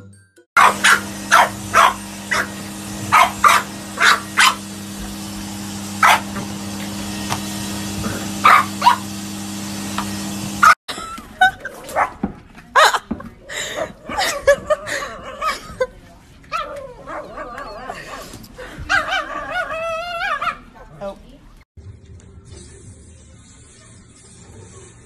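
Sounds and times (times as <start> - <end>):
puppy barking sharply: 0.6 - 2.5, 3.1 - 4.6, 6.0 - 6.4, 8.4 - 9.0
vacuum cleaner motor humming: 0.6 - 10.8.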